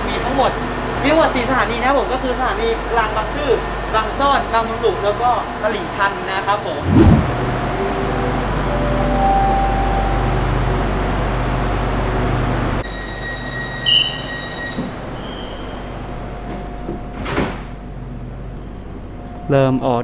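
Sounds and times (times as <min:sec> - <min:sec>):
train hum: 0:05.4 - 0:12.8
train doors sliding shut: 0:16.4 - 0:17.8.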